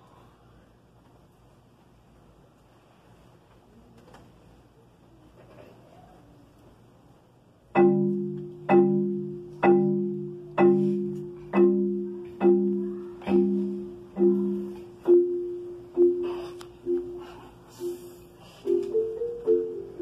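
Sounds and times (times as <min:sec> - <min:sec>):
marimba chords: 0:07.7 - 0:20.0.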